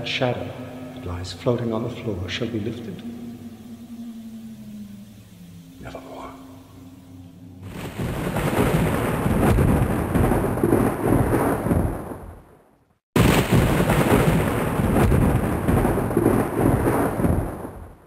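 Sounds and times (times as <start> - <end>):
thunder rumbling: 0.0 - 18.0.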